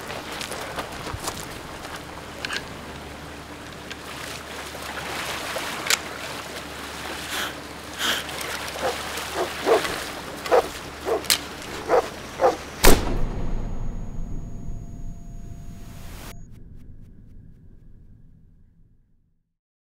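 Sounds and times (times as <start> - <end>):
river water running: 0.0 - 13.1
dog splashing while swimming: 3.9 - 12.8
loud pistol shot: 12.8 - 14.8.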